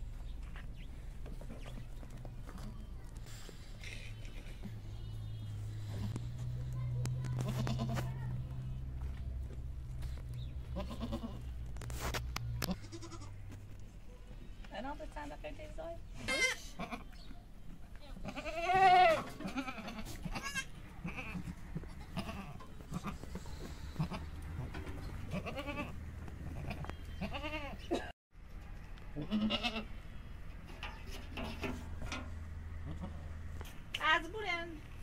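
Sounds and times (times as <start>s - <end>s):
goat bleating: 7.3s - 8.2s, 10.7s - 11.5s, 12.6s - 13.4s, 16.2s - 17.2s, 18.2s - 28.0s, 29.2s - 30.0s, 32.8s - 33.3s.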